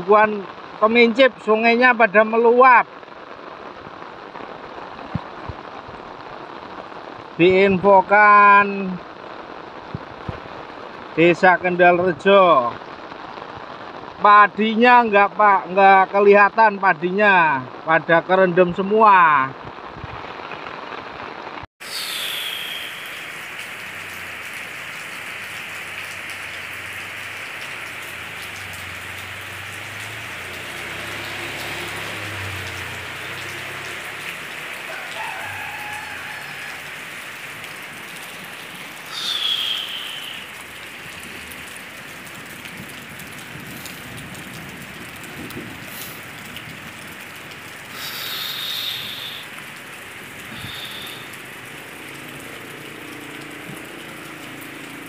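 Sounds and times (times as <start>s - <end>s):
rushing floodwater: 0.0s - 55.0s
heavy rain hissing: 18.4s - 55.0s.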